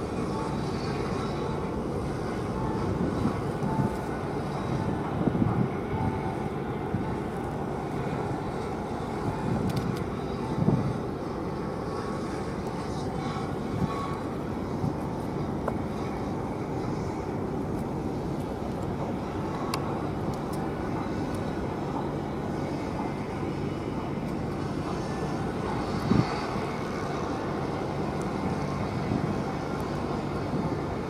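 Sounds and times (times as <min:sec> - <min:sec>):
ship engines rumbling: 0:00.0 - 0:31.0.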